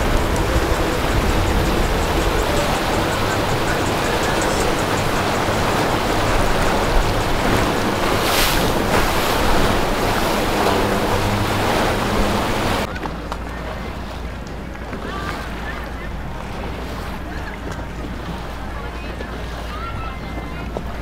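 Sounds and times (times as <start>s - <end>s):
wind buffeting microphone: 0.0s - 12.9s
boat engines droning: 0.0s - 21.0s
rushing water: 0.0s - 21.0s.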